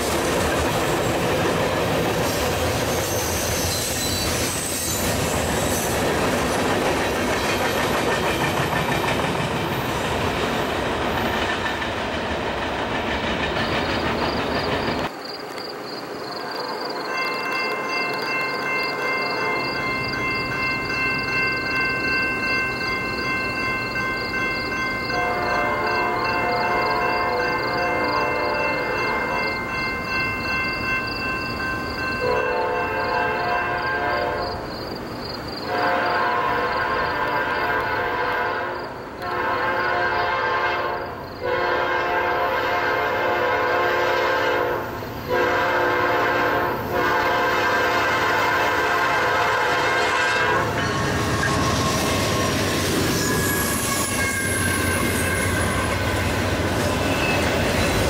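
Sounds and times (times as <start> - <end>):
freight train rumbling: 0.0 - 58.0
high locomotive tones: 0.7 - 58.0
locomotive air horn blasts: 25.2 - 26.6, 32.2 - 34.6, 35.7 - 51.6.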